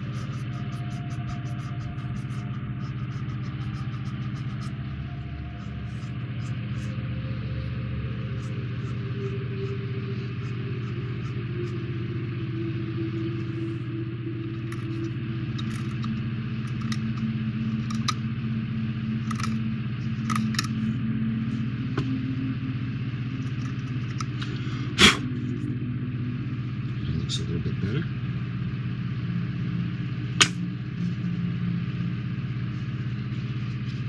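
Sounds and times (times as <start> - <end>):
low machine hum: 0.0 - 34.0
sharp click: 30.4 - 30.6.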